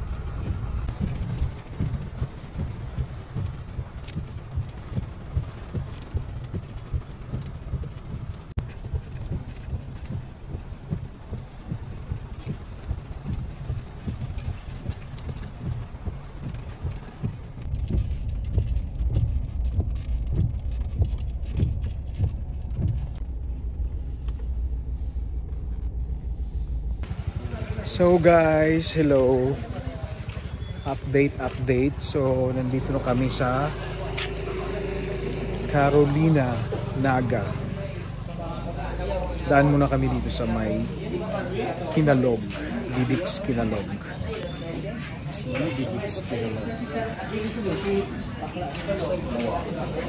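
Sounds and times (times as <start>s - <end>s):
vehicle rumbling over rough road: 0.0s - 50.0s
sharp ticks: 0.1s - 23.2s.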